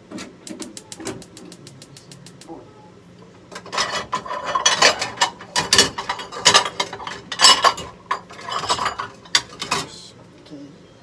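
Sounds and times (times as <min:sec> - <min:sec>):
dishes clattering in a rack: 0:03.5 - 0:10.0.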